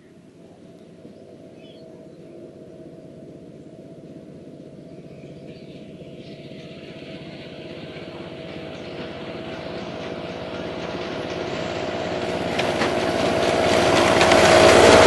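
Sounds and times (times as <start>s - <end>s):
wheels hissing on rails: 0.9s - 15.0s
miniature locomotive running: 5.8s - 15.0s.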